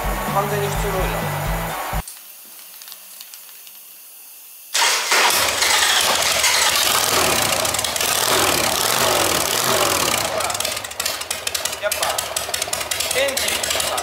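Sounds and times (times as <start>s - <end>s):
motorcycle engine starting: 4.8s - 14.0s
motorcycle engine idling: 6.1s - 14.0s.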